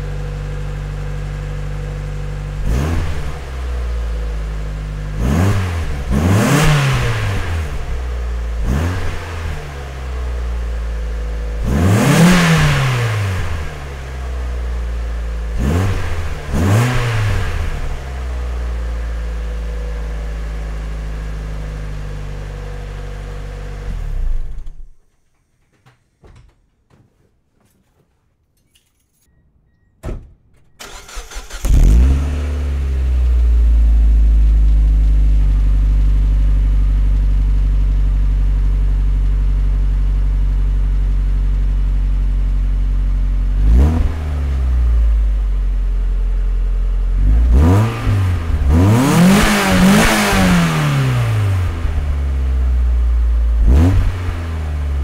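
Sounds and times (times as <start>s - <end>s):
car engine idling: 0.0s - 5.2s, 30.8s - 55.0s
car engine starting: 0.0s - 25.0s, 30.8s - 55.0s
engine revving: 2.4s - 4.2s, 5.0s - 10.6s, 11.5s - 14.3s, 15.5s - 18.7s, 30.8s - 34.9s, 43.6s - 45.3s, 47.2s - 52.8s, 53.5s - 55.0s.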